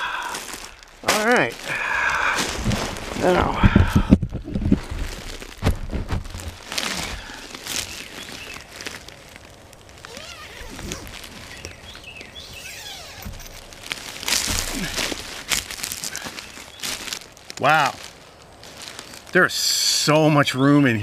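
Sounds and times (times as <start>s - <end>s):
nylon tent rustling and knocks: 2.4s - 9.1s, 10.1s - 17.2s
tent zipper closing: 10.0s - 11.7s, 12.4s - 14.5s
faint bird chirps: 11.4s - 13.6s.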